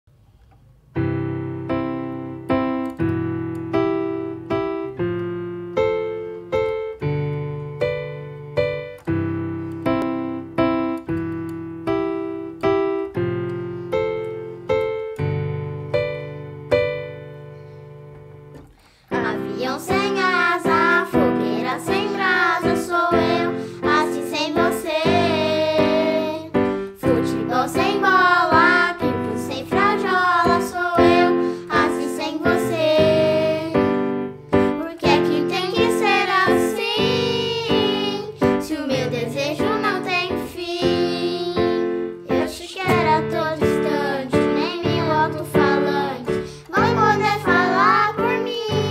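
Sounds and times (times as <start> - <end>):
electronic keyboard piano chords: 0.8 - 48.9
children singing: 19.2 - 33.8, 35.0 - 48.9.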